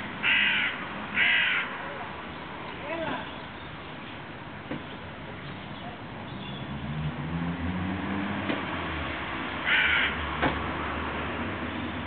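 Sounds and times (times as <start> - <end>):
crow cawing: 0.2 - 1.8, 9.6 - 10.3.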